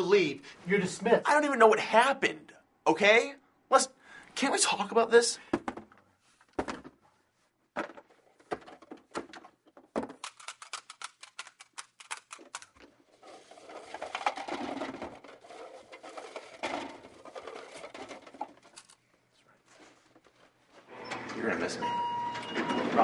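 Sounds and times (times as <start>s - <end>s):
desk items tapping and clicking: 7.8s - 13.0s
cups clattering into a box: 13.3s - 18.7s.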